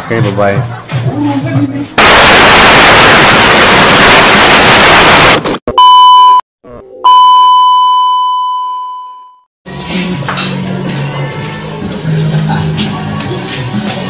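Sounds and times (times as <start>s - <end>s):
tv static hiss: 2.0s - 5.6s
high test tone beep: 5.7s - 6.4s, 7.0s - 9.4s.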